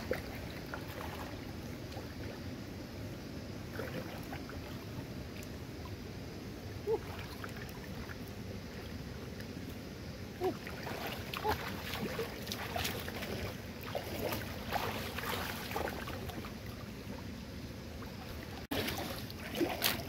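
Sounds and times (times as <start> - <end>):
stream water splashing: 0.0 - 20.0.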